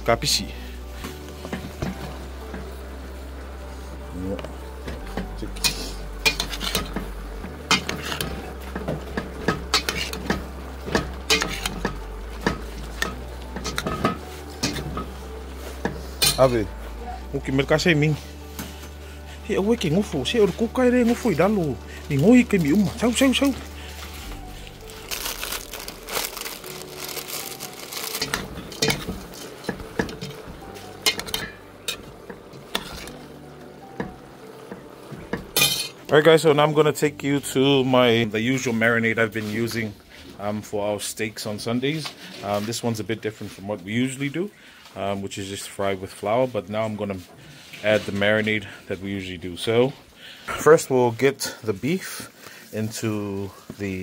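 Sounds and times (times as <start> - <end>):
metal spoon scraping metal pot: 5.6 - 7.0, 7.7 - 8.5, 9.5 - 10.4, 11.2 - 15.2, 31.0 - 32.1, 32.7 - 33.2
metal spoon stirring in a pot: 5.6 - 16.4, 22.0 - 33.3
plastic packet crinkling: 21.3 - 29.6.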